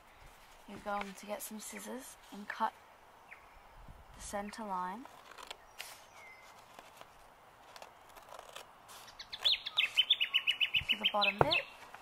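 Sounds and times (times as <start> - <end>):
bird chirping rapidly: 9.0 - 11.8.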